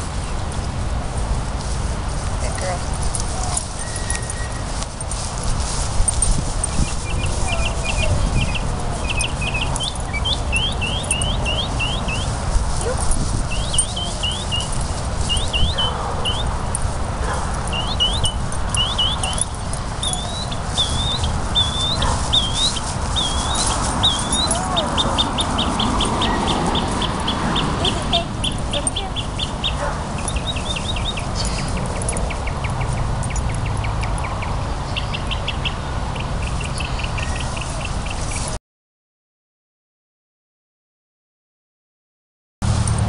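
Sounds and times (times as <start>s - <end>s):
steady low rumble: 0.0s - 35.4s
songbird singing: 2.4s - 38.6s.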